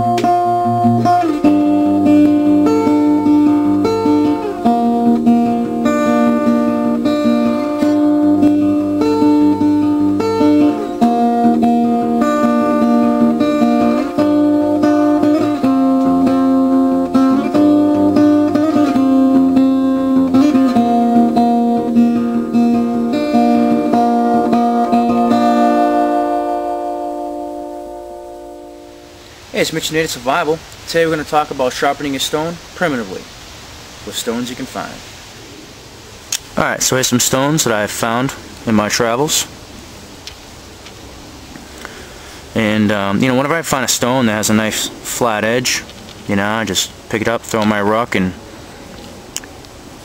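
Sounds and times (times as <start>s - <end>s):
acoustic guitar melody: 0.0s - 29.7s.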